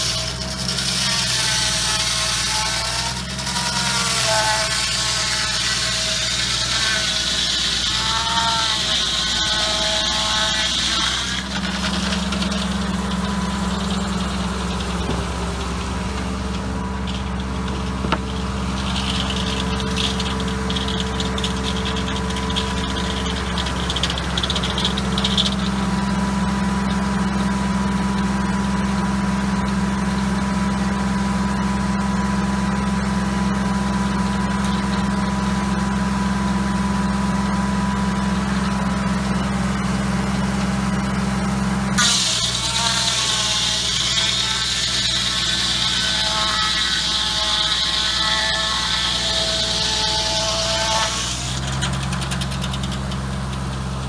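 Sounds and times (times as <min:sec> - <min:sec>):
tractor engine running: 0:11.2 - 0:42.6, 0:51.2 - 0:54.0
saw blade hissing through wood: 0:42.0 - 0:48.2.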